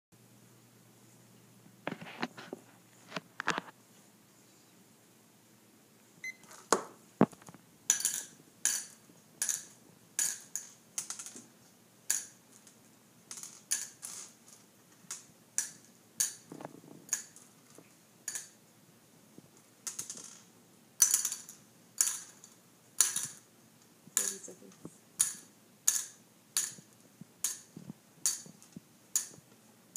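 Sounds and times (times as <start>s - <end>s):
candies dropping into plastic cups: 12.1s - 18.6s, 19.8s - 23.5s, 24.2s - 24.6s, 25.2s - 26.8s.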